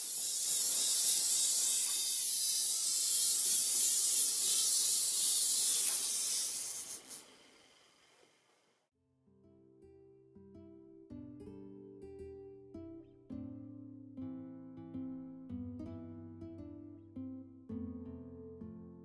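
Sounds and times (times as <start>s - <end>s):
loud high-pitched hiss: 0.0s - 8.5s.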